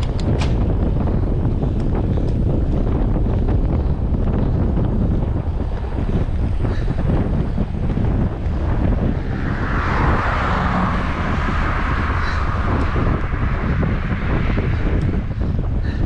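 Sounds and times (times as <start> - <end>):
wind buffeting microphone: 0.0 - 16.0
car passing: 7.2 - 16.0.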